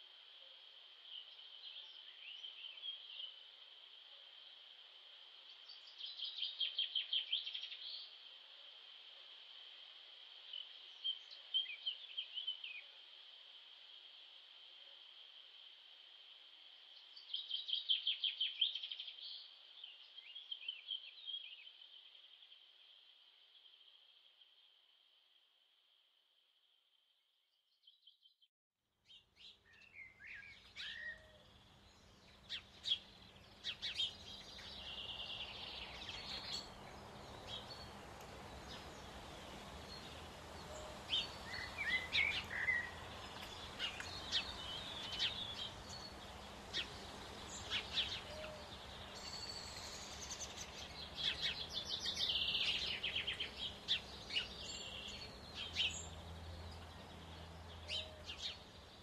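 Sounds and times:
steady outdoor hiss: 0.0s - 26.9s, 29.0s - 59.0s
small birds chirping: 17.0s - 24.7s, 29.0s - 59.0s.

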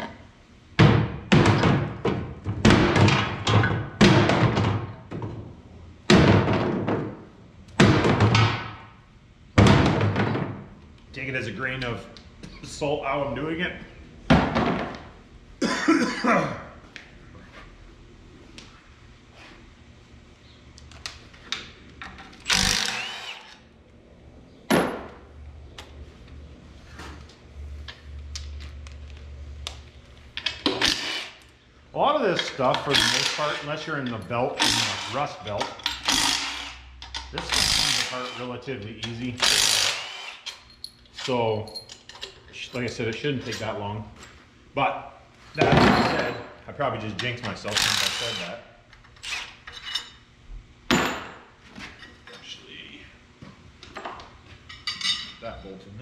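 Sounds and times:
tools clicking and knocking on metal: 32.3s - 38.1s, 39.0s - 43.8s.

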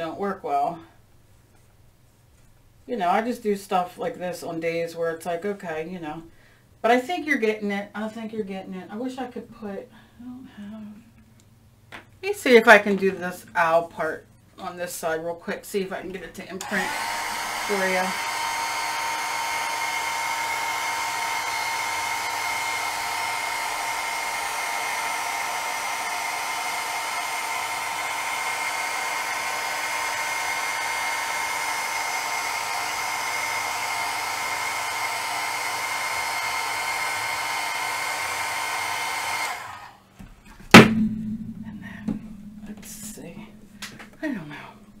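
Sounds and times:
heat gun blowing with whine: 16.6s - 40.1s
loud sharp knock: 40.7s - 42.9s.

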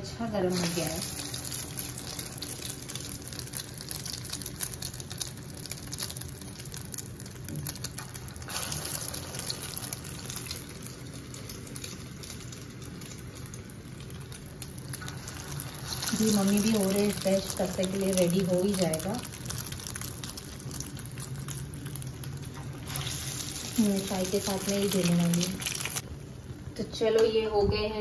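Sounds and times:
cutlets deep-frying in oil: 0.0s - 26.1s.

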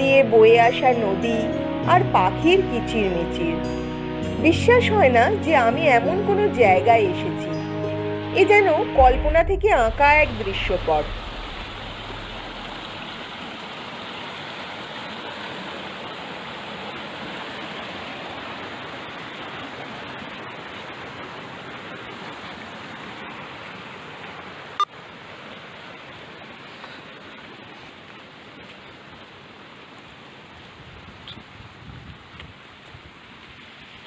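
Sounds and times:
sharp knock: 9.0s - 13.1s
river rushing over boulders: 9.0s - 34.0s.

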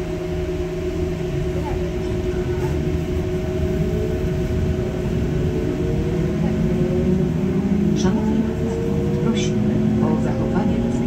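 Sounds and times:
bus engine rumble: 0.0s - 11.0s
rising whine: 0.0s - 11.0s.

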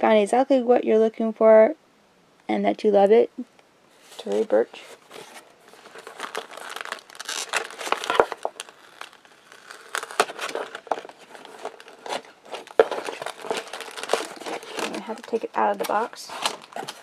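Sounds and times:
paper and cardboard rustling: 4.0s - 17.0s.

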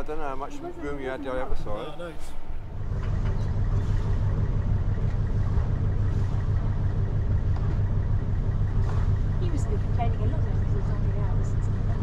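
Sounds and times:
boat engine low rumble: 0.0s - 12.0s.

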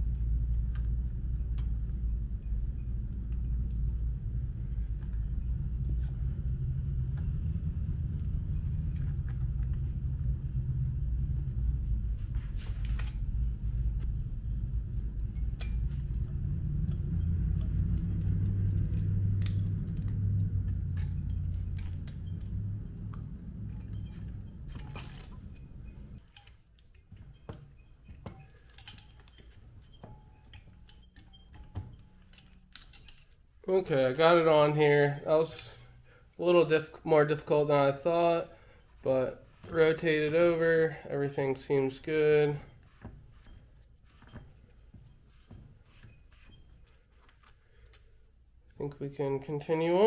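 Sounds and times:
low steady rumble: 0.0s - 50.0s
metal tools clinking: 23.7s - 33.4s, 35.0s - 36.0s.

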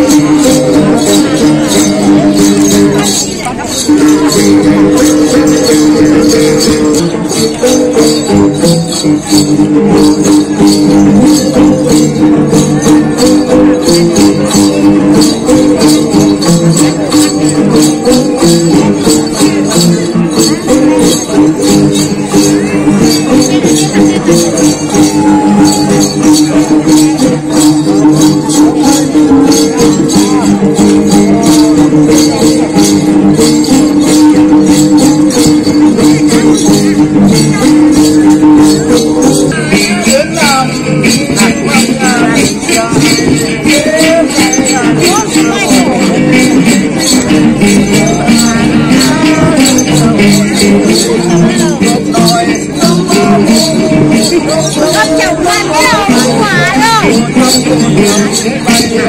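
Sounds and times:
lutes strummed together: 0.0s - 59.0s.

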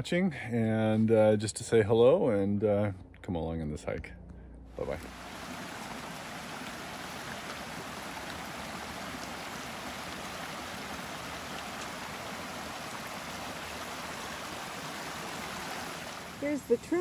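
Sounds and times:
creek splashing over stones: 4.9s - 17.0s.

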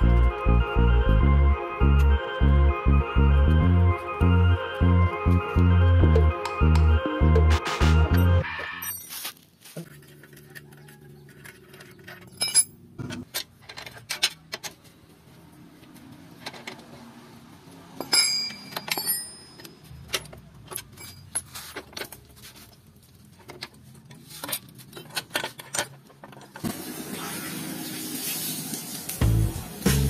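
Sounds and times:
metal tools clinking: 8.7s - 14.6s, 18.0s - 22.4s
ringing metal clank: 18.0s - 19.9s.

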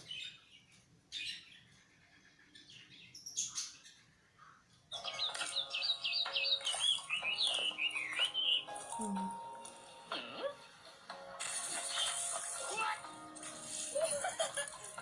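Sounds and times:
bird chirping: 0.0s - 9.4s.

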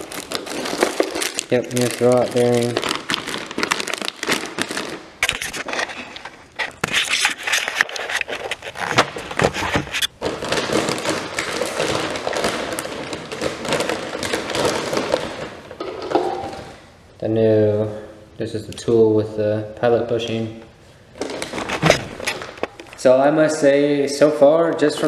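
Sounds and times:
plastic bags crinkling: 0.0s - 16.9s, 21.1s - 23.2s
sharp clicks and scrapes: 5.2s - 10.1s.

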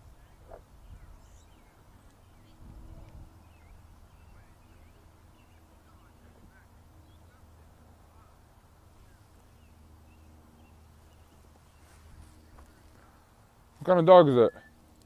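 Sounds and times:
bird chirps: 0.8s - 7.4s, 14.4s - 14.9s.

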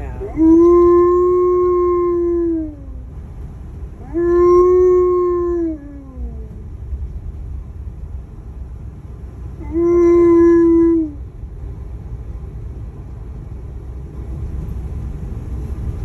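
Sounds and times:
low road rumble: 0.0s - 16.0s
dog howling: 0.1s - 3.1s, 4.0s - 6.6s, 9.6s - 11.2s.

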